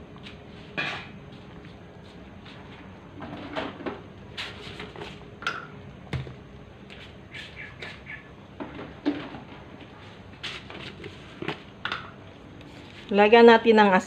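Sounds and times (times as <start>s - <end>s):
faint steady hum: 0.0s - 14.0s
small birds chirping: 7.3s - 8.4s.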